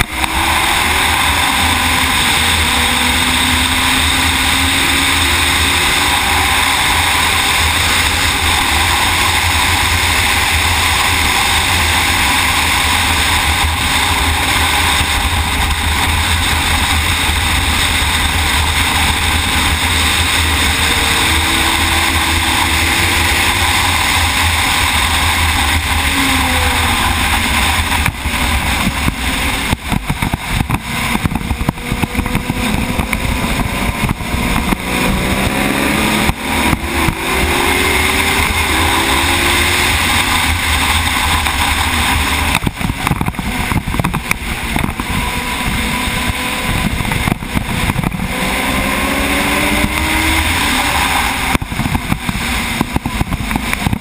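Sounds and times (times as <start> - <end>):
motorcycle engine revving: 0.0 - 54.0
wind rush on microphone: 0.0 - 54.0.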